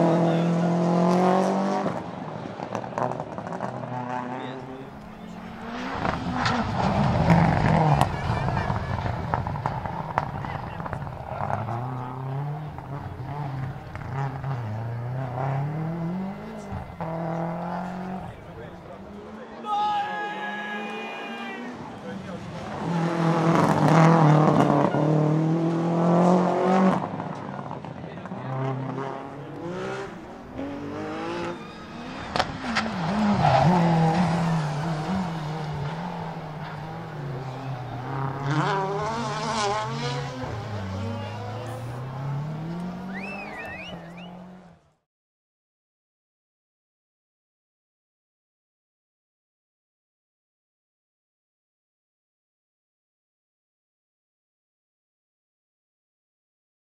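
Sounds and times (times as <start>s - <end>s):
rally car engine revving: 0.0s - 19.6s, 21.6s - 44.9s.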